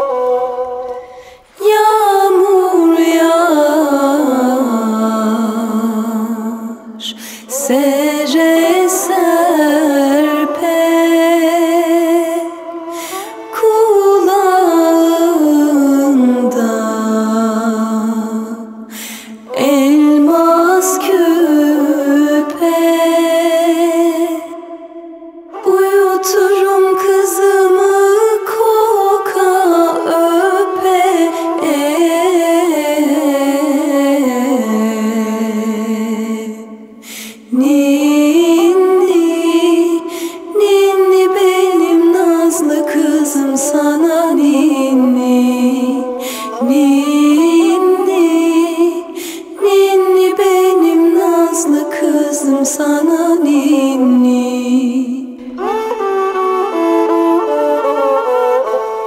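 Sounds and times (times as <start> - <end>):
singer breathing: 1.0 - 1.6, 7.1 - 7.6, 12.8 - 13.5, 18.9 - 19.5, 36.9 - 37.5, 40.0 - 40.5, 46.2 - 46.6, 49.1 - 49.6
woman singing a lullaby: 1.5 - 18.7, 19.4 - 24.6, 25.6 - 55.5.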